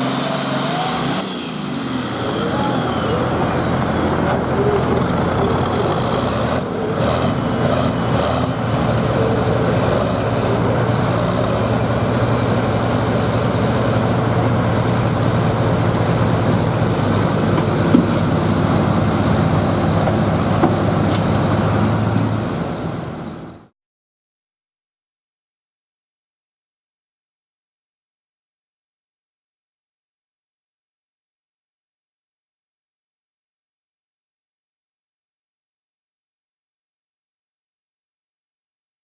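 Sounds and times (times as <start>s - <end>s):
tractor diesel engine idling: 1.3s - 23.7s.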